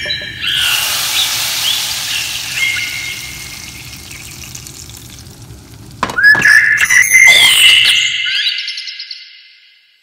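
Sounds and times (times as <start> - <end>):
hot oil sizzling in a pot: 0.4 - 6.2.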